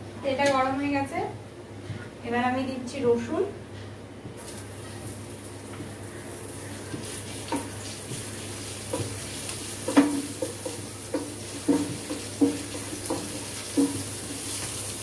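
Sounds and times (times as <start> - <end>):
garlic sizzling in oil: 4.4 - 15.0.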